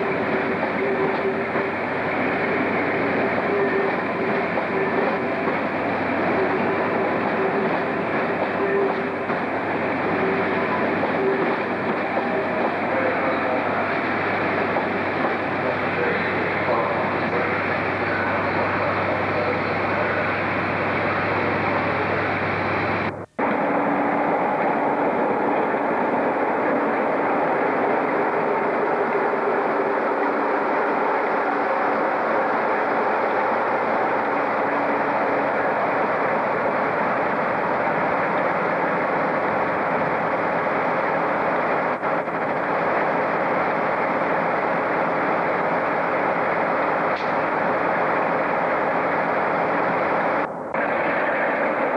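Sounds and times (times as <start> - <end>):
diesel locomotive idling: 0.0 - 51.9
train noise with low hum: 0.0 - 51.9.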